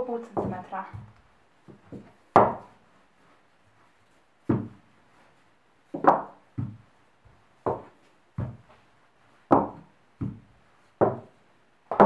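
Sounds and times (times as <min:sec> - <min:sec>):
rolling pin knocking on countertop: 0:00.4 - 0:02.7, 0:09.5 - 0:11.3.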